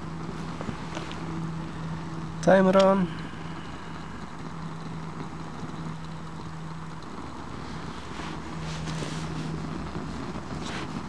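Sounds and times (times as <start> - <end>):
outdoor background rush: 0.0 - 11.0
faint rustles: 3.1 - 11.0.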